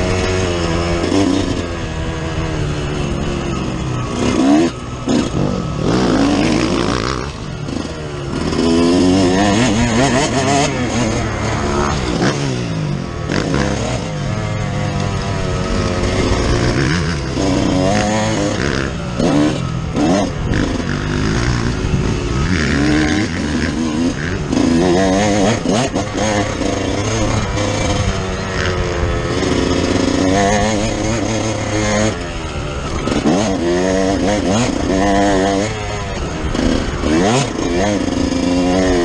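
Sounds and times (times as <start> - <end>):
two-stroke motorcycle engine revving: 0.0 - 39.0.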